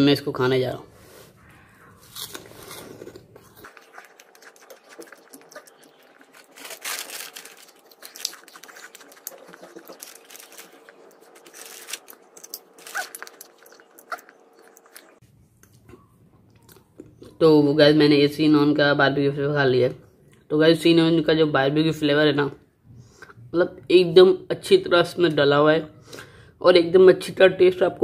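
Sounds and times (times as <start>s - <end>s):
crunchy snack chewing: 2.0s - 15.9s.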